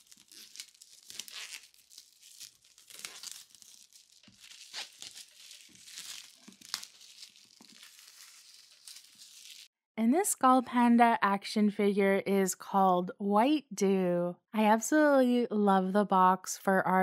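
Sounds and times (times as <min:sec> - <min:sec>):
shrink wrap tearing and crinkling: 0:00.0 - 0:09.7.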